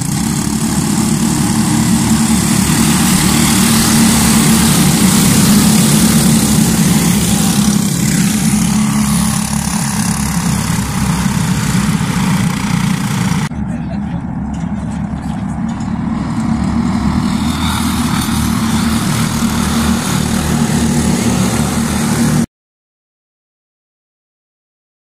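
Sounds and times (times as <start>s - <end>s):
strong even hiss: 0.0s - 13.5s, 16.1s - 22.4s
engine running: 0.0s - 22.5s.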